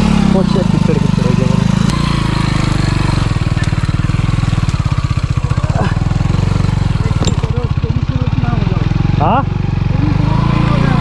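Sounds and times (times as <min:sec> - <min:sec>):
motorcycle engine puttering: 0:00.0 - 0:11.0.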